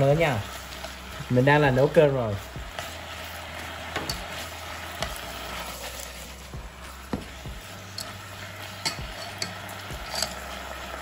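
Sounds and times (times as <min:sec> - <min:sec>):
food sizzling in sauce: 0:00.0 - 0:11.0
chopsticks clicking against pan: 0:08.8 - 0:10.4.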